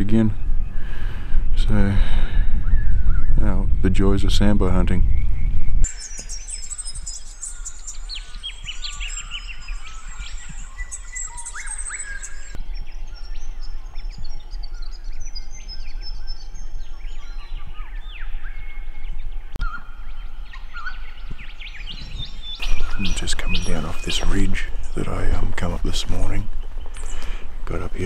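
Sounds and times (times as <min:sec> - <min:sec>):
birds chirping and whistling: 0:00.0 - 0:04.0, 0:05.0 - 0:28.0.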